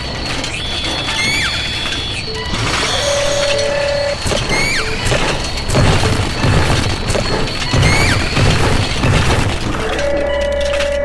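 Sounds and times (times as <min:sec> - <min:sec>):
rocks and rubble crashing: 0:04.2 - 0:10.8.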